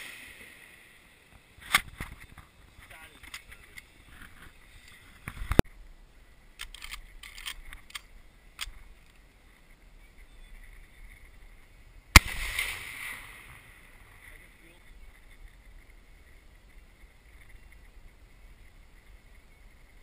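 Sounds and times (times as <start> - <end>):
shotgun shot with echo: 12.2 - 13.4.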